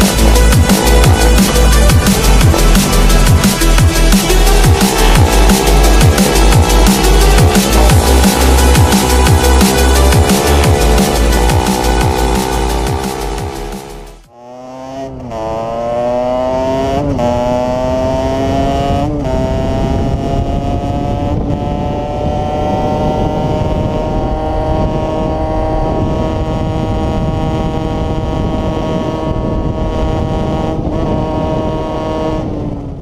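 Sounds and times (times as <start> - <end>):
motorcycle engine accelerating: 0.0 - 33.0
wind rush on microphone: 16.8 - 33.0.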